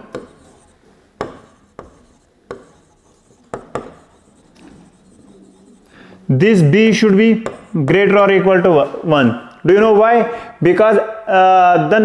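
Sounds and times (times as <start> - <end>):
stylus scratching on glass: 0.0 - 6.0, 6.8 - 8.5.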